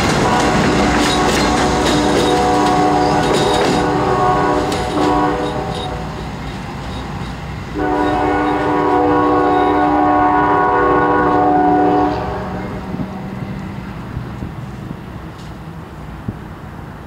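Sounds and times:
locomotive air horn: 0.0 - 6.2, 7.8 - 12.9
rumble of moving train: 0.0 - 17.0.

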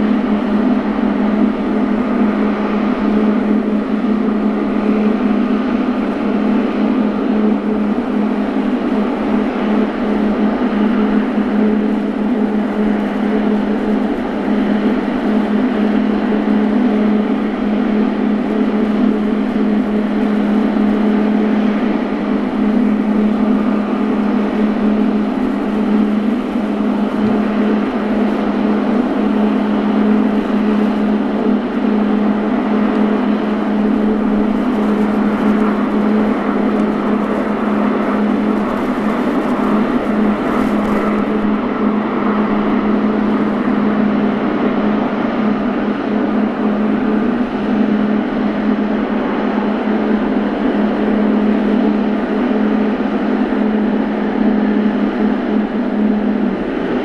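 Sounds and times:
jet engines idling: 0.0 - 57.0.

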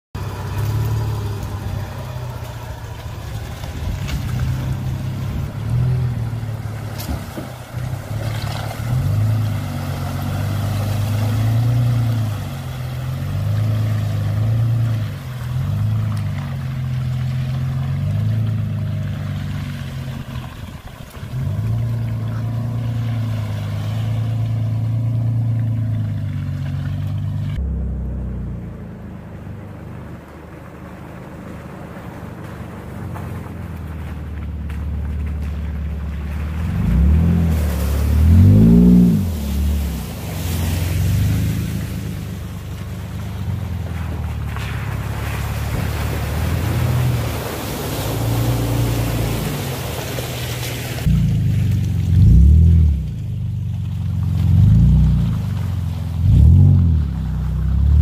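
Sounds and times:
pickup truck engine revving: 34.6 - 53.2, 54.3 - 58.0.

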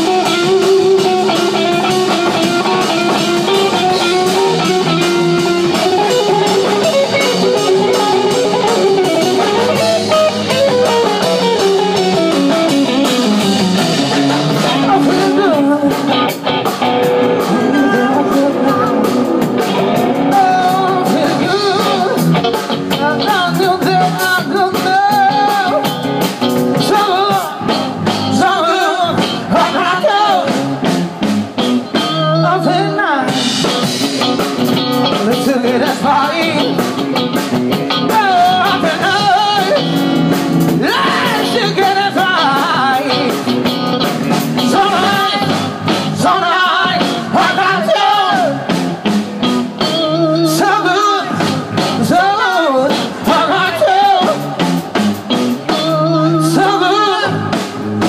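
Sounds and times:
live rock band playing: 0.0 - 58.0
man singing into microphone: 14.5 - 16.3, 17.4 - 19.4, 20.0 - 22.4, 23.0 - 26.0, 26.8 - 30.7, 32.0 - 33.6, 35.0 - 37.1, 37.9 - 40.0, 40.8 - 43.7, 44.6 - 48.7, 49.8 - 54.6, 55.7 - 58.0.

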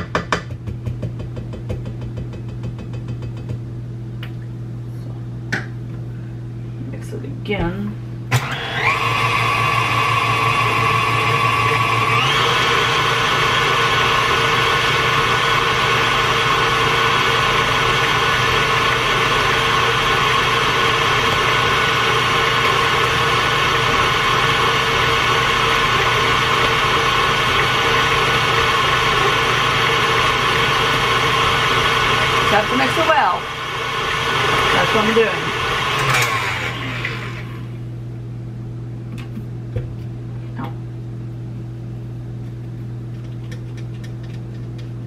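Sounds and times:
electric mixer beating dough: 8.3 - 37.8.

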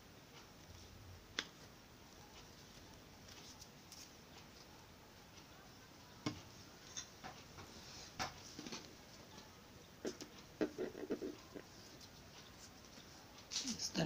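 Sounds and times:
ribbon rustling: 0.5 - 4.7.

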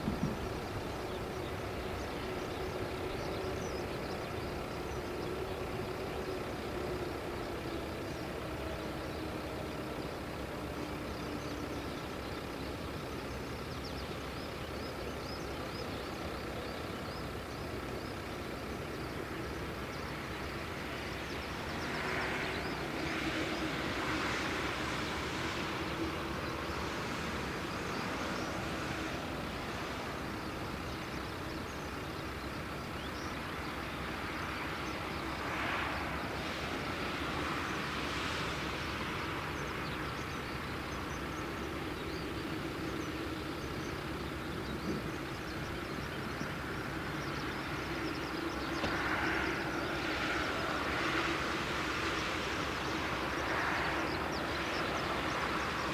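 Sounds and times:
distant jet engines rumbling: 0.0 - 55.9.

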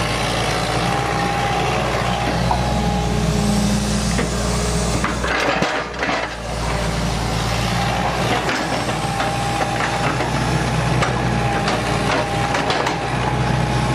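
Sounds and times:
excavator diesel engine: 0.0 - 13.9
thin steady whine: 0.7 - 5.2.

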